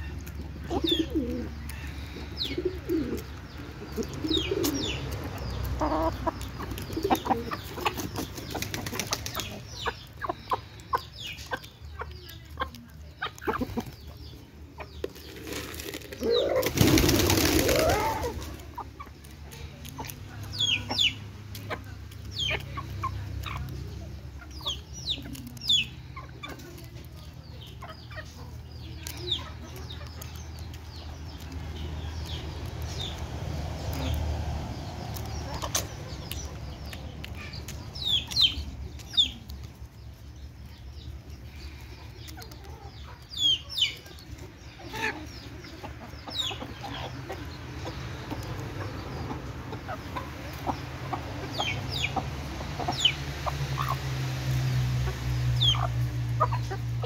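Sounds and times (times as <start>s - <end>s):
chickens pecking clicks: 0.0s - 57.0s
hens clucking: 0.0s - 57.0s
rustling flurry: 15.1s - 18.7s.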